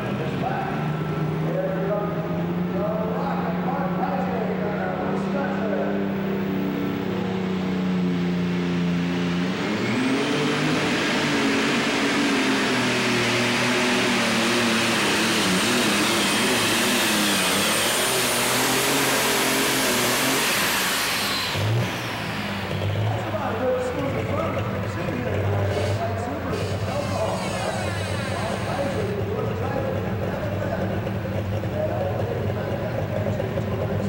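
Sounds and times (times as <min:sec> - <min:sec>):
tractor engine at full throttle: 0:00.0 - 0:34.0.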